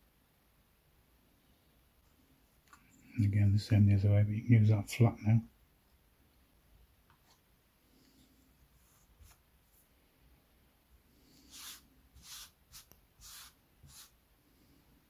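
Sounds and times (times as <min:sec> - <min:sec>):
fingers sweeping wood shavings: 0:11.4 - 0:14.1.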